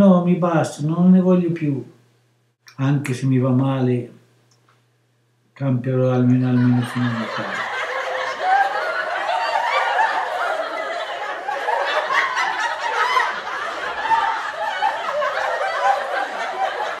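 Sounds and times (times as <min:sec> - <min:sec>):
group of people laughing: 0:06.4 - 0:17.0.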